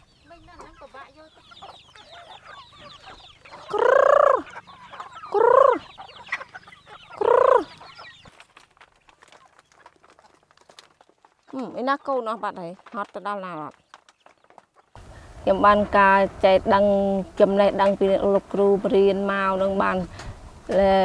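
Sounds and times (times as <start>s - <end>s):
loud drawn-out chicken calls: 0.0s - 12.6s, 13.6s - 16.1s
chickens clucking and chirping: 0.0s - 21.0s.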